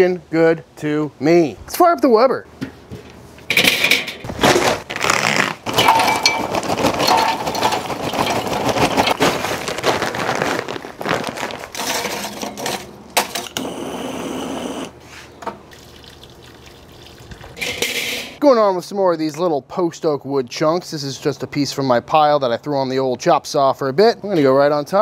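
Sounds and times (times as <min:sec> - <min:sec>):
charcoal clattering into grill: 0:03.5 - 0:04.9, 0:05.6 - 0:09.8, 0:11.6 - 0:13.6.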